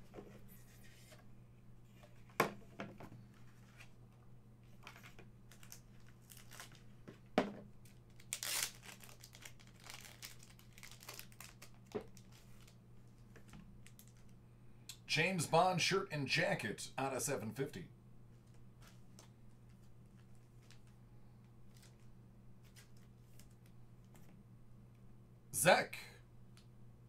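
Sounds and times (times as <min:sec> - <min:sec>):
packaging crinkling and tearing: 0:04.8 - 0:06.9, 0:07.9 - 0:12.8.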